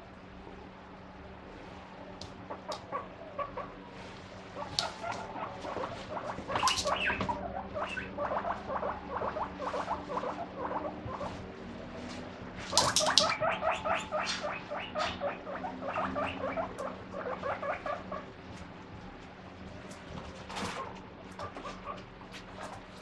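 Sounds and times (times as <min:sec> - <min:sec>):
guinea pig squeaking: 0:02.5 - 0:03.8, 0:04.5 - 0:18.6, 0:19.8 - 0:23.0.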